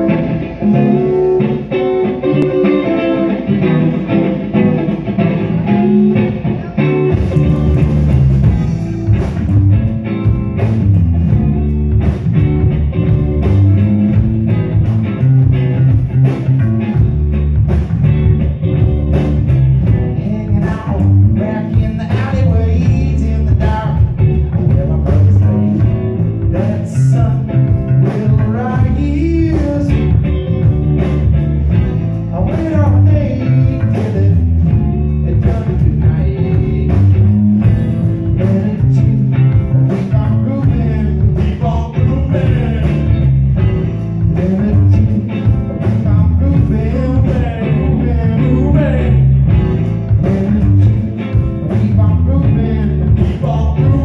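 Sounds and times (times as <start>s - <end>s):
electric bass: 0.0s - 54.0s
electric guitar: 0.0s - 54.0s.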